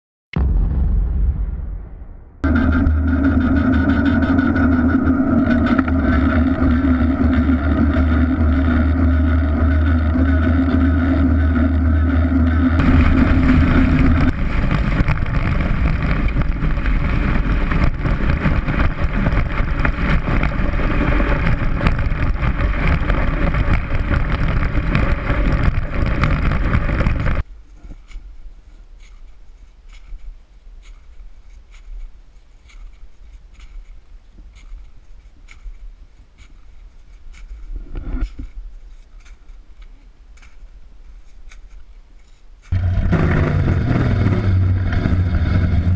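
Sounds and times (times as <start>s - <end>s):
steady low drone: 0.4s - 28.1s, 42.7s - 45.9s
wind rushing on microphone: 12.7s - 27.4s
faint rustling: 24.8s - 43.2s.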